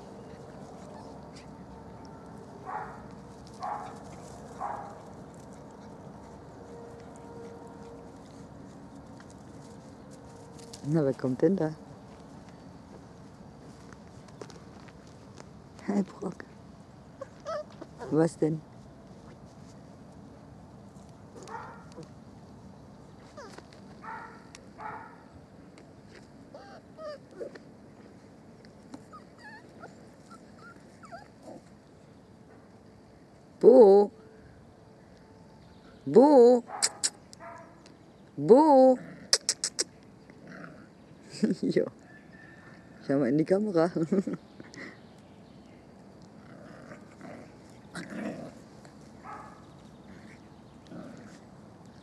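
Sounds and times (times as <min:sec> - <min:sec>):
puppies growling and yipping: 0:17.2 - 0:18.2, 0:26.5 - 0:27.6, 0:29.0 - 0:31.8, 0:46.3 - 0:51.6
puppies whimpering and squeaking: 0:17.2 - 0:18.2, 0:26.5 - 0:27.5, 0:29.0 - 0:31.7.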